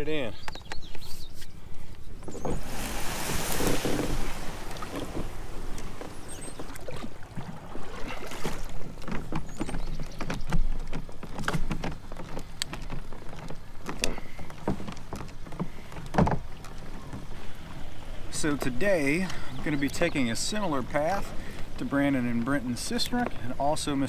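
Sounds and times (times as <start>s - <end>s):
paddle strokes and splashes: 1.1s - 24.0s
kayak sliding off bank: 2.1s - 18.4s
paddle knocking against hull: 2.2s - 17.3s.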